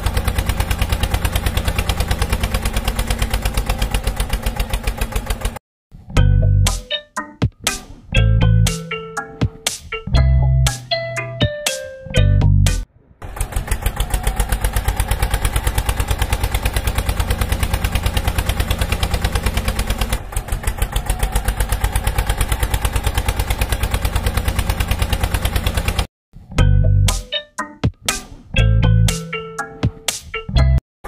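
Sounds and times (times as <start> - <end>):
tractor engine chugging: 0.0 - 5.6, 13.2 - 26.1.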